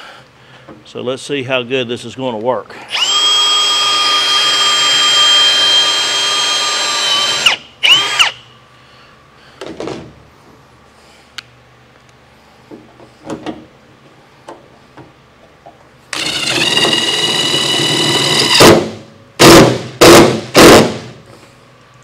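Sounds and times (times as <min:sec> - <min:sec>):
cordless drill whining: 0:02.9 - 0:08.4, 0:16.1 - 0:18.7.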